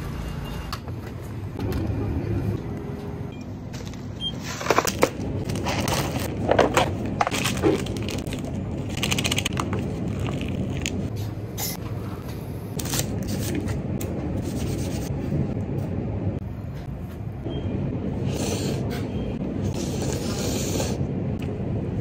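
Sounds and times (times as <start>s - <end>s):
packaging crinkling and tearing: 4.6s - 11.1s.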